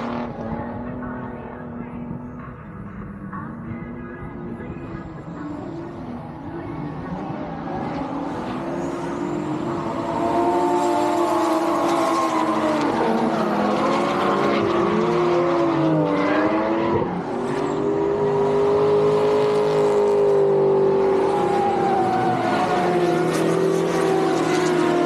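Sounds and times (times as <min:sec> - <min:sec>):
car engines revving hard: 0:00.0 - 0:25.0
tyre squeal: 0:08.6 - 0:14.3.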